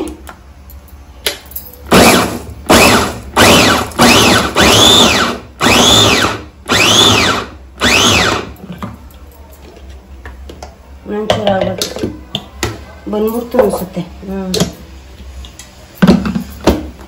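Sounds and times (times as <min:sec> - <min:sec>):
electric chopper motor whine: 0:01.9 - 0:08.5.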